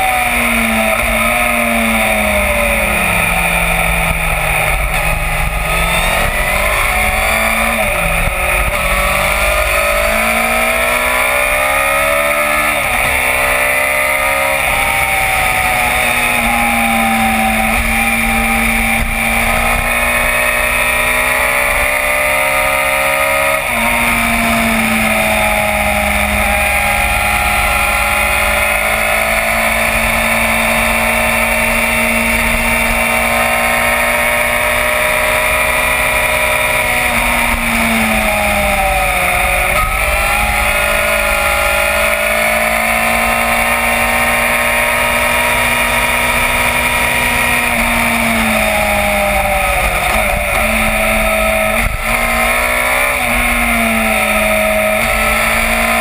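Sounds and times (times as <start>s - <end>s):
gear changes: 0.0s - 56.0s
motorcycle engine revving: 0.0s - 56.0s.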